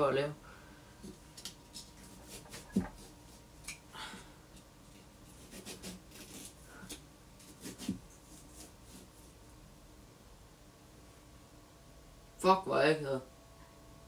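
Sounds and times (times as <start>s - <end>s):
knife scraping and crunching pumpkin: 1.4s - 3.4s, 4.9s - 9.4s.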